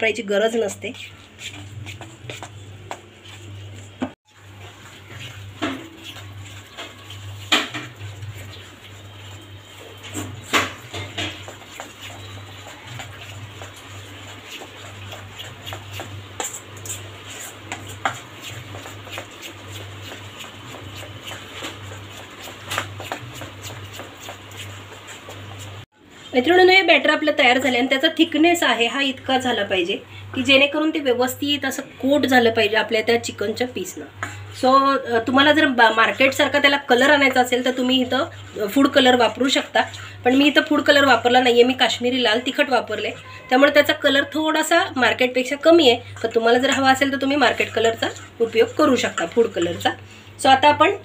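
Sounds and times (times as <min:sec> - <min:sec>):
hand mixing wet batter: 0:00.0 - 0:51.0.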